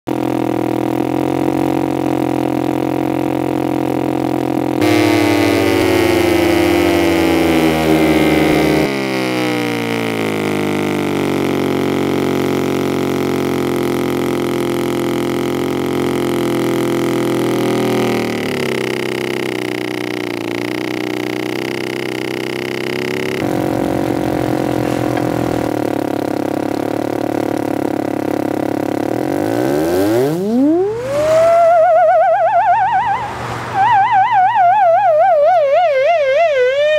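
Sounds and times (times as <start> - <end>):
low buzzing electronic drone: 0.1 - 36.9.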